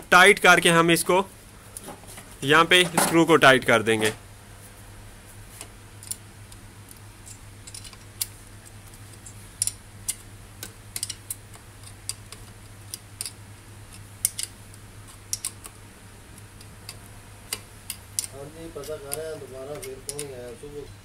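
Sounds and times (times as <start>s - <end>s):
spanner metallic clicks: 5.6s - 15.8s, 16.4s - 20.6s.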